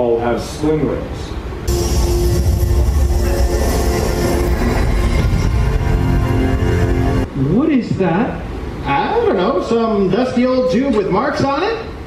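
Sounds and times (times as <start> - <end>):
heavy low rumble: 1.6 - 8.8
dramatic stage-show music: 1.7 - 7.3.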